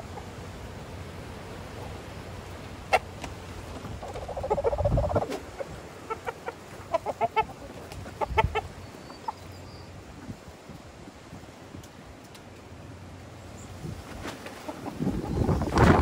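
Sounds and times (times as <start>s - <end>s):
chickens clucking: 2.6s - 10.4s, 13.9s - 16.0s.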